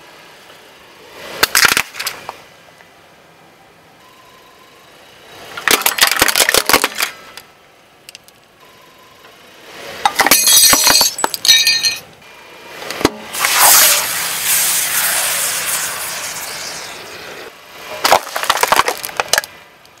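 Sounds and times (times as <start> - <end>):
aerosol can bursting and hissing: 13.3 - 17.2.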